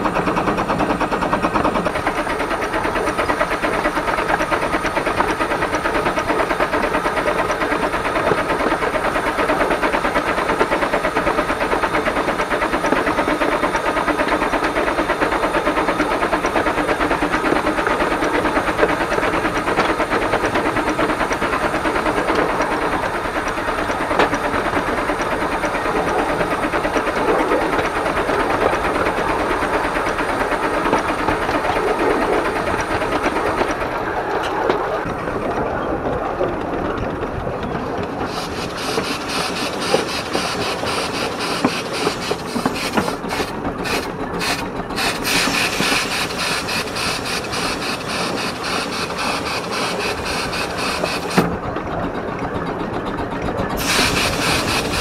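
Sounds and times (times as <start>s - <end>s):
train rumbling and clattering: 0.0s - 55.0s
steam hissing: 38.3s - 51.5s, 53.8s - 55.0s.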